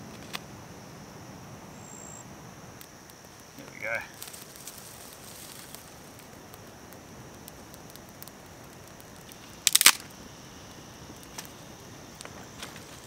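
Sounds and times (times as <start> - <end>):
campfire crackling: 0.0 - 13.0
high insect buzz: 0.0 - 13.0
dry stick snapping: 7.4 - 10.1.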